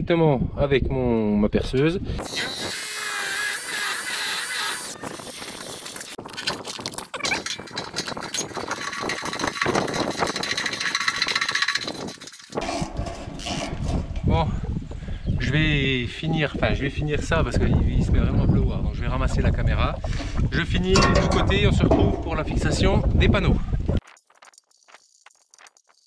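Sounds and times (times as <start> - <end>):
rotary hammer drilling concrete: 2.2 - 6.2, 6.9 - 14.1.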